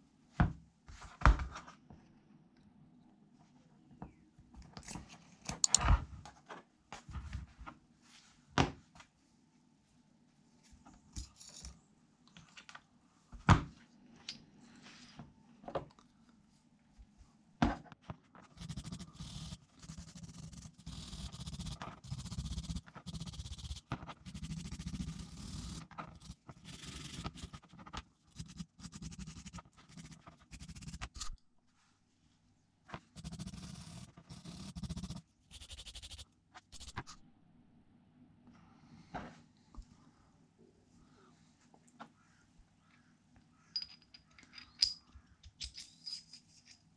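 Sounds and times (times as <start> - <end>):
metal parts clinking: 43.8 - 46.9.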